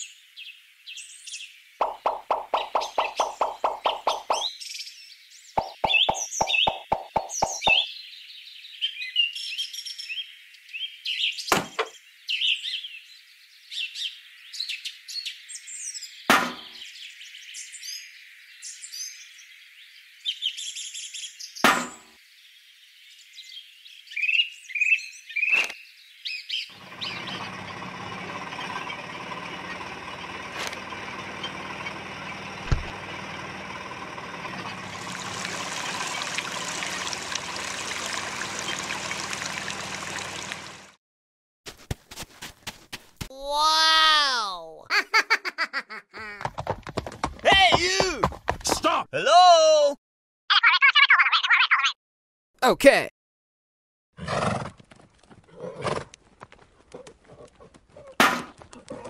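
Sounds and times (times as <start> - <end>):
birds chirping: 0.4 - 21.6, 22.5 - 40.9
liquid trickling into buckets: 34.8 - 41.0.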